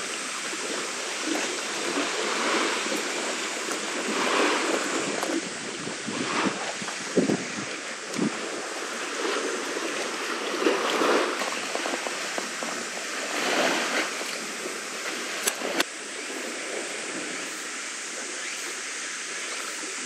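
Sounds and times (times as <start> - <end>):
seawater lapping: 0.0 - 20.0
wind rushing: 2.2 - 11.5.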